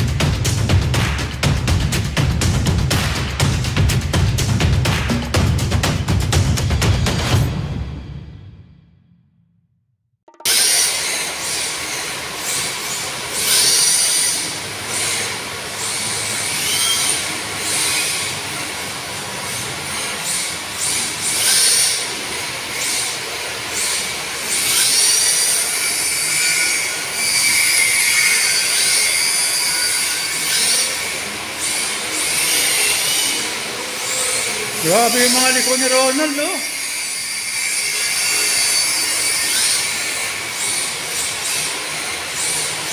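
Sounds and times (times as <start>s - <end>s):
tyres squealing on tile: 10.6s - 18.4s, 22.8s - 34.9s, 35.6s - 42.9s.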